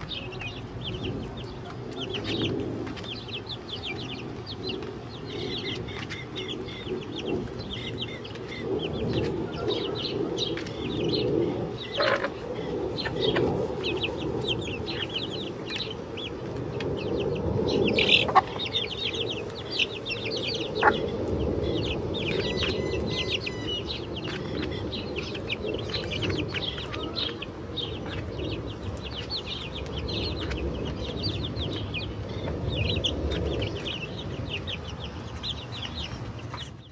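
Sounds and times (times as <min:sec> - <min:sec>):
chickens clucking: 0:11.8 - 0:36.8.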